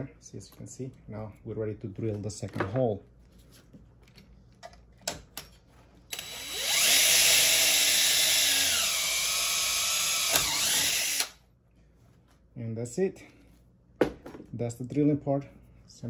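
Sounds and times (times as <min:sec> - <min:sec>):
cordless drill boring metal: 0:06.1 - 0:11.4.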